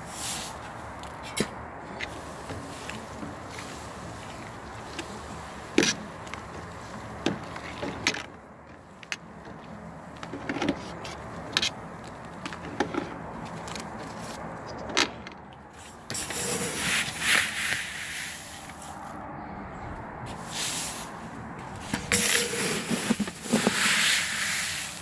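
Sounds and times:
dry grain rustling in scoop: 0.0s - 0.7s, 15.8s - 19.1s, 20.3s - 21.2s, 21.8s - 25.0s
spoon stirring mash: 22.0s - 24.0s.

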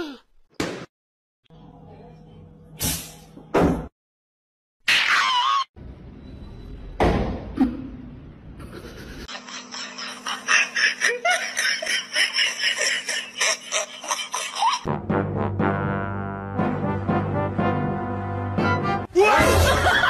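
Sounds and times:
rapid rhythmic laughter: 8.6s - 14.9s, 19.3s - 20.0s.

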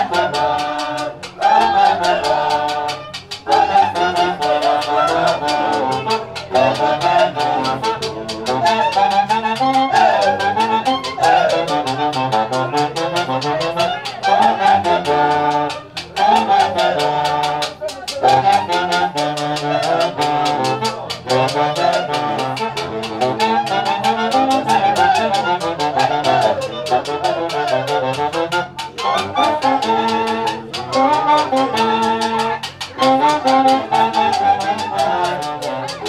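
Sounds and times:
brass band playing dance tune: 0.0s - 36.0s
fast percussion beat: 0.0s - 36.0s
trumpet melody: 0.0s - 36.0s.

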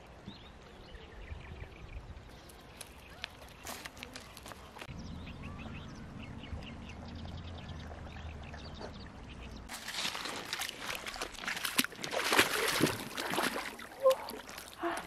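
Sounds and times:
small birds chirping: 0.0s - 11.2s
water splashing while wading: 9.7s - 15.0s.

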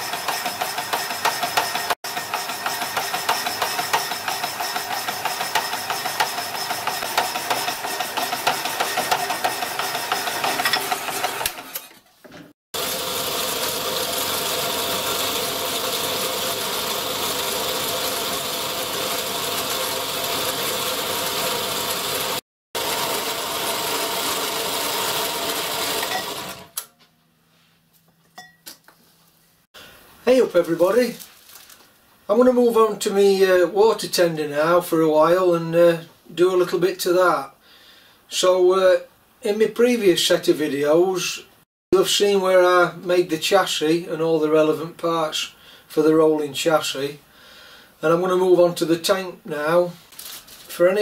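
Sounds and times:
power hacksaw cutting metal bar: 0.0s - 12.1s, 12.8s - 26.9s.

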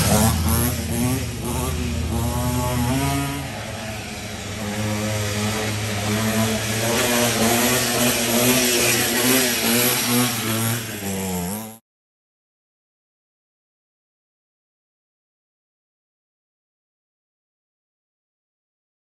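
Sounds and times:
dirt bike engine revving: 0.0s - 11.8s.

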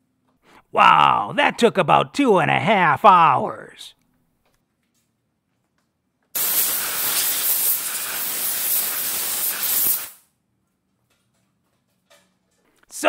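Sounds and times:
compressed air blow gun hissing: 6.4s - 10.2s.

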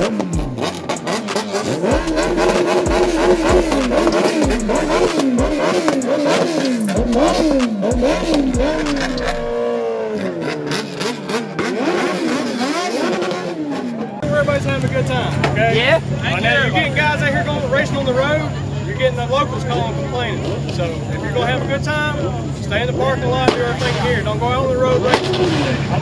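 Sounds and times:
exhaust pops: 0.0s - 9.6s, 23.4s - 26.0s
engine revving: 0.0s - 16.2s, 22.8s - 26.0s.

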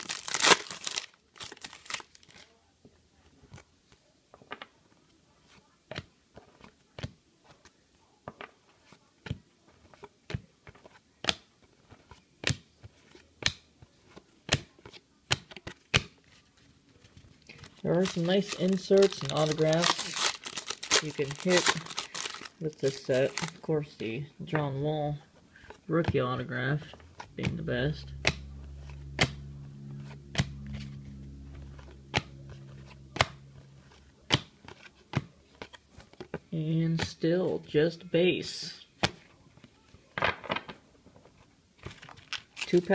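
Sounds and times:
low steady hum: 16.9s - 36.3s.

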